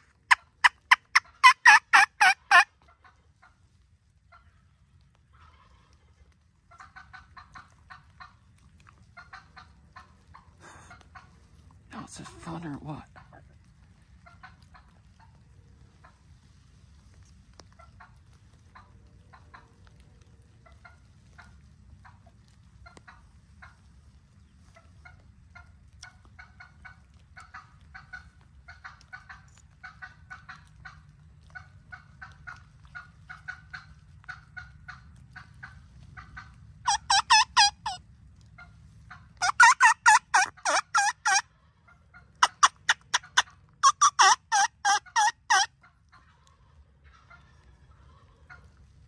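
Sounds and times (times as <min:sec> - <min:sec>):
wild turkeys calling: 0:00.0 - 0:03.6, 0:06.7 - 0:48.8.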